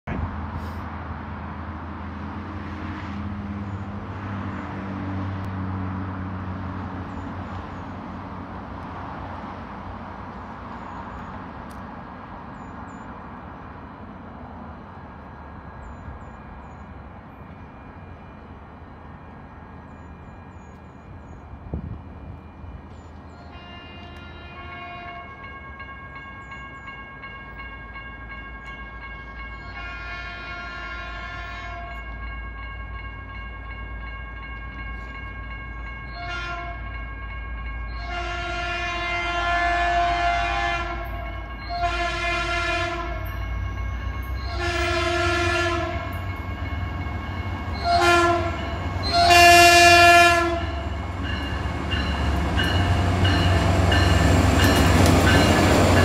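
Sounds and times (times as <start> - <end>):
low rumble of train: 0.0 - 56.0
train air horn blasts: 23.4 - 25.5, 29.0 - 32.1, 36.1 - 37.0, 37.9 - 46.3, 47.7 - 51.0.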